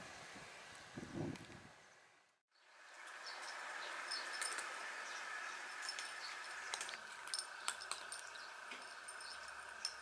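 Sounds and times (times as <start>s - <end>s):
cats crunching dry kibble: 6.7s - 8.1s.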